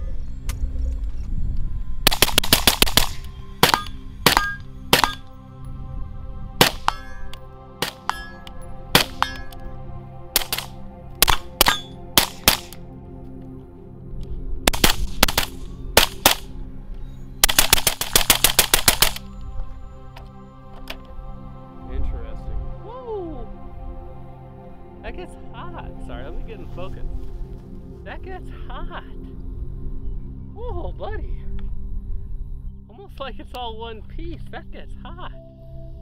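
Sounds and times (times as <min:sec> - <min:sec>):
background music sustained tones: 0:00.0 - 0:36.0
suppressed rifle shots: 0:02.1 - 0:05.3, 0:06.6 - 0:07.1, 0:09.0 - 0:09.5, 0:10.4 - 0:12.8, 0:14.7 - 0:16.5, 0:17.4 - 0:19.2.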